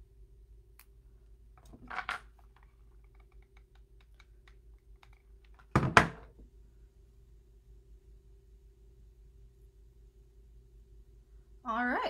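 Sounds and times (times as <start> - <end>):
light clicks and taps: 2.5 - 5.7.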